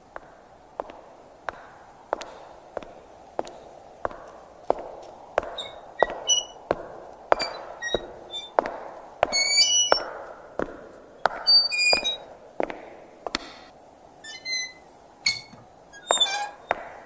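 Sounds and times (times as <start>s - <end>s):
footsteps on cobblestones: 0.0s - 14.6s, 15.5s - 17.0s.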